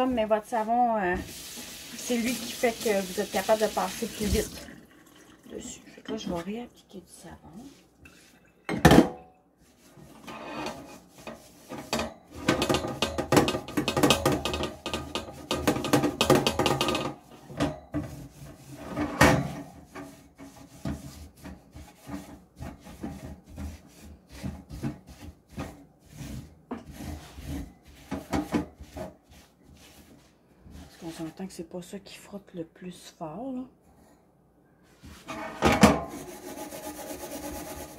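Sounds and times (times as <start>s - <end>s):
steel wool scouring metal rack: 0.2s - 4.4s, 17.3s - 30.2s, 36.1s - 37.9s.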